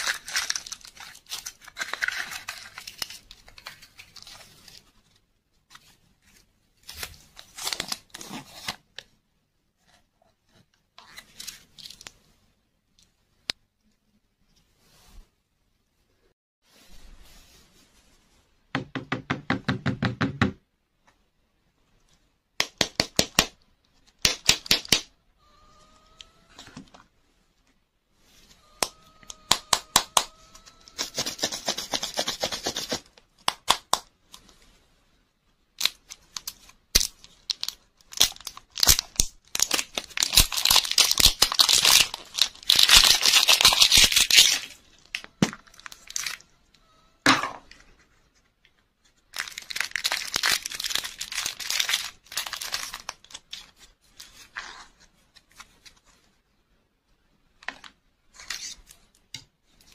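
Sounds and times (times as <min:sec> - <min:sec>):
plastic wrapping crinkling and tearing: 0:00.0 - 0:04.9, 0:06.8 - 0:08.8, 0:35.8 - 0:46.5, 0:49.2 - 0:56.0.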